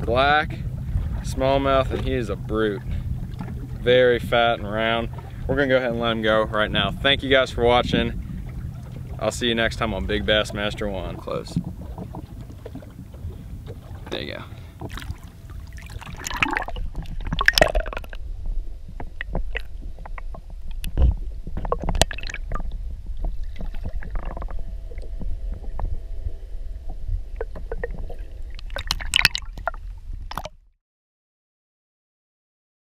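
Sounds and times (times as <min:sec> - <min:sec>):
steady low rumble: 0:00.0 - 0:30.6
water sloshing and gurgling: 0:00.0 - 0:30.7
sharp water splashes: 0:11.1 - 0:18.2, 0:21.7 - 0:22.8, 0:27.4 - 0:30.6.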